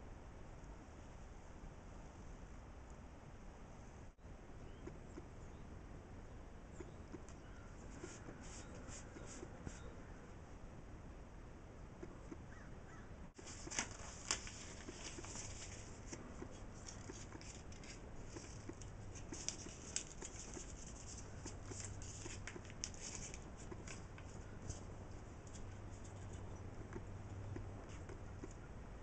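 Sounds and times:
paper rustling and scratching: 7.7 - 9.9, 13.4 - 26.6.

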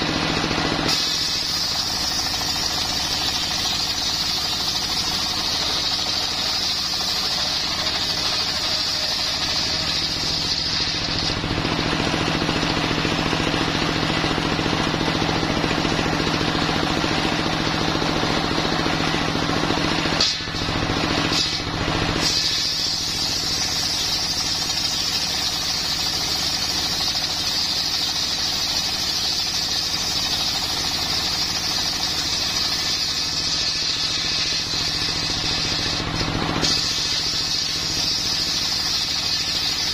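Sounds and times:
diesel engine drone: 0.0 - 23.7.

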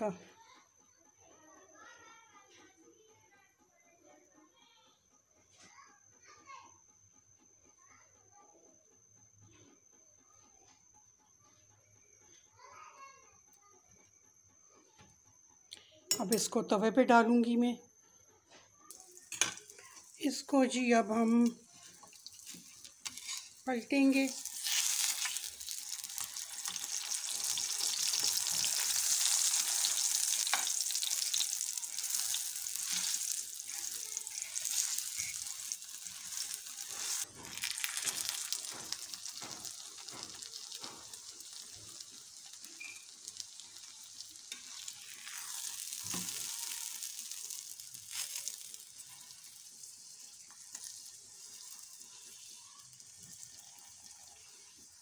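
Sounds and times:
oil sizzling under frying bread: 18.7 - 55.0.

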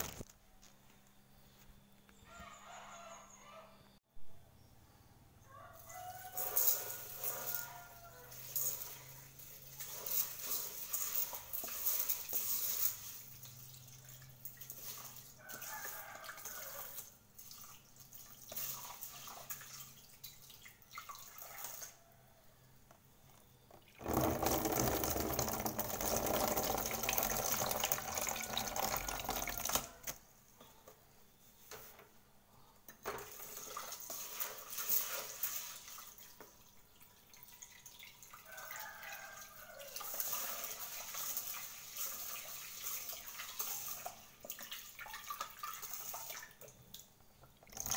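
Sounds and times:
water poured into sink: 23.8 - 30.2, 33.1 - 46.8, 47.6 - 47.9
tap water splashing into pot: 40.0 - 47.9.

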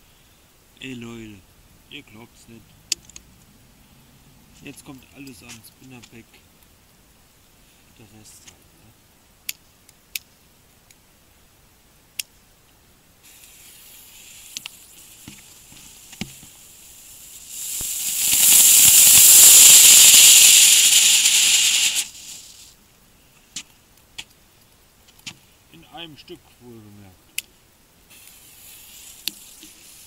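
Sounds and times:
fireworks hissing: 13.2 - 22.8, 28.1 - 30.0.

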